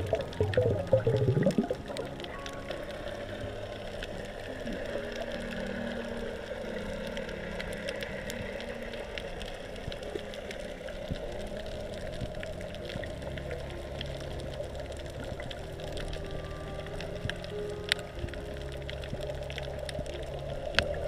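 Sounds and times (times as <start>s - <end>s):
low held tones: 0.0s - 9.2s
sharp underwater clicks: 7.0s - 21.0s.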